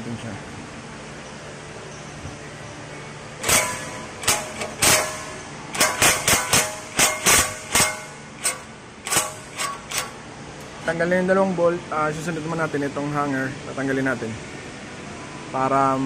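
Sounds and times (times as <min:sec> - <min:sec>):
impact wrench hammering: 0:03.4 - 0:10.2.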